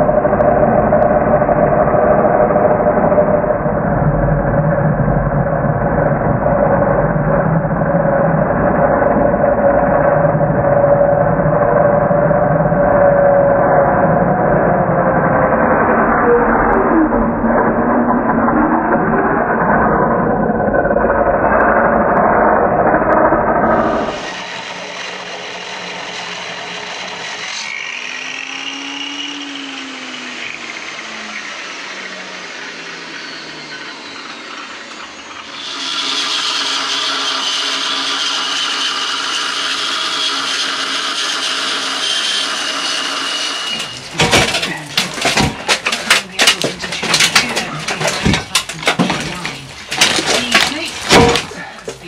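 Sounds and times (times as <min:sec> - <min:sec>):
angle grinder cutting steel: 0:23.4 - 0:52.0
knocks and clatter: 0:42.5 - 0:52.0.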